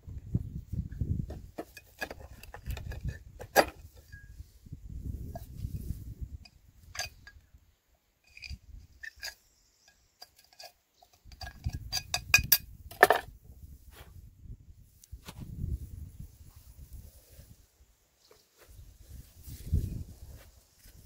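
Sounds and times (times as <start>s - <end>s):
metal tools clinking: 6.9s - 7.4s, 8.3s - 13.2s.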